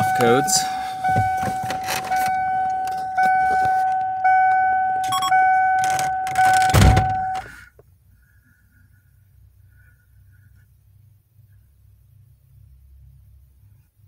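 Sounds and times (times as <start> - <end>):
dashboard warning chime: 0.0 - 7.5.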